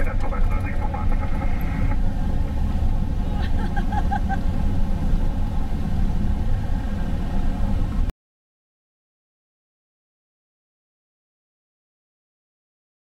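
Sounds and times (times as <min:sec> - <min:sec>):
airflow rushing in cockpit: 0:00.0 - 0:08.1.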